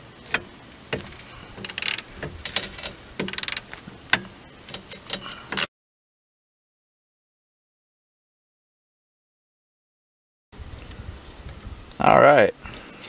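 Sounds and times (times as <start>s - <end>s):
ratchet wrench clicking: 0.3s - 5.7s.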